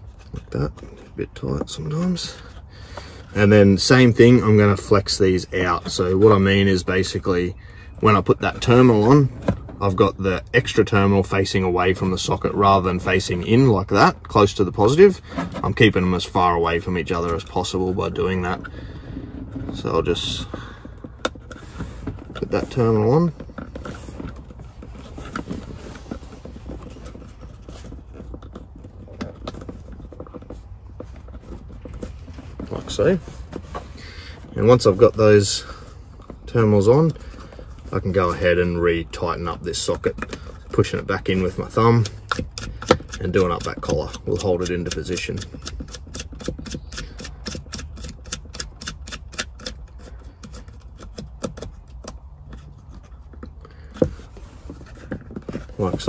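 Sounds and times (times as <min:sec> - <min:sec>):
clicks taps and scrapes of hands: 0:39.8 - 0:56.0.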